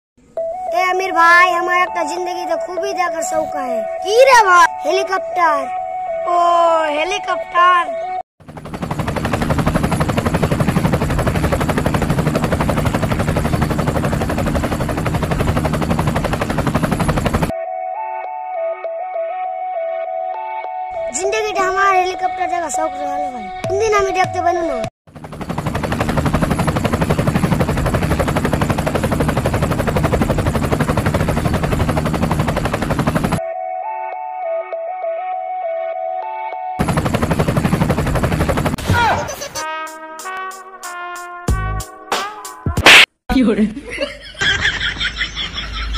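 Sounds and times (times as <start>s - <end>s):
helicopter rotor beating: 8.4s - 17.5s, 23.7s - 33.4s, 36.8s - 39.6s.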